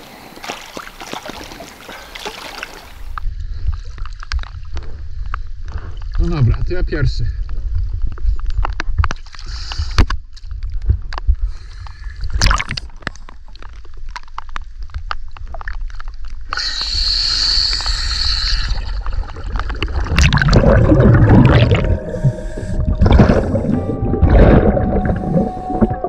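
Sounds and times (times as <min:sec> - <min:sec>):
water splashing and gurgling: 0:00.0 - 0:04.8, 0:12.2 - 0:16.9, 0:17.7 - 0:26.0
loud low bubbling: 0:18.7 - 0:26.0.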